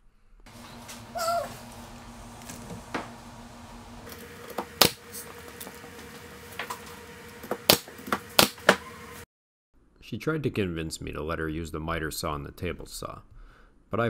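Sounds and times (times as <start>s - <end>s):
pneumatic nailer firing: 4.5s - 5.0s, 7.6s - 8.8s.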